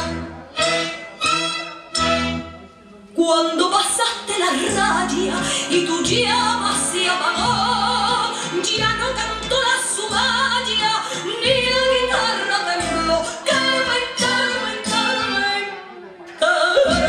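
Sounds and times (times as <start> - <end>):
instrumental accompaniment: 0.0 - 3.1.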